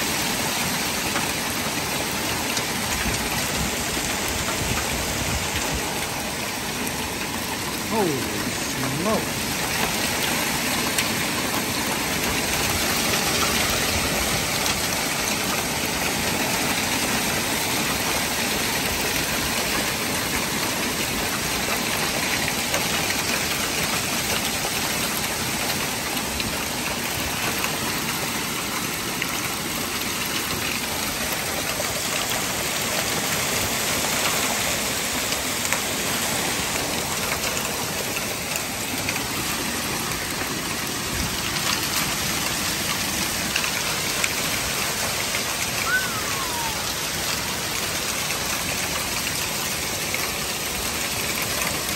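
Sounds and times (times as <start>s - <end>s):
hailstones striking: 0.0s - 51.9s
heavy rain hiss: 0.0s - 51.9s.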